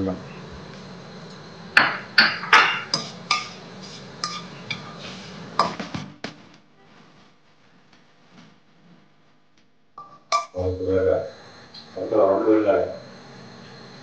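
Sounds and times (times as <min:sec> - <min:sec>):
spices sizzling in oil: 0:00.5 - 0:06.0
spatula scraping a wok: 0:02.3 - 0:06.2.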